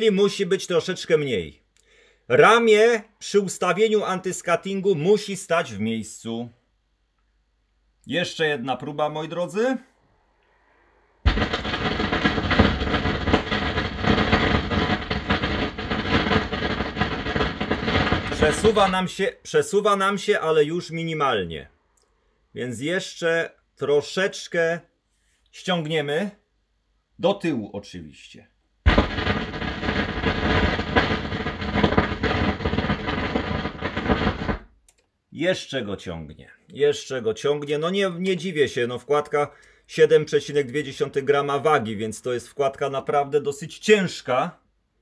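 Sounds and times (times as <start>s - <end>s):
stylus scraping with crackles: 11.3s - 19.0s, 28.9s - 34.7s.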